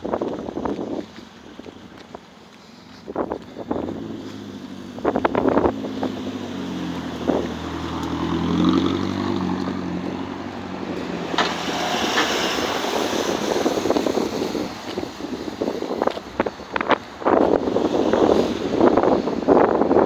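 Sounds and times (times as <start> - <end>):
car driving past: 3.7 - 15.4.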